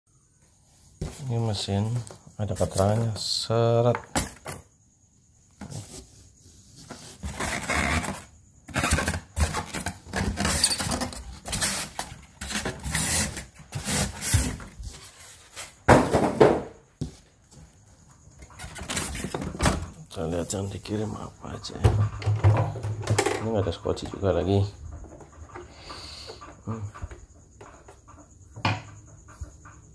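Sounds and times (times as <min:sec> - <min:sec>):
styrofoam and cardboard rustling: 0:05.6 - 0:16.5.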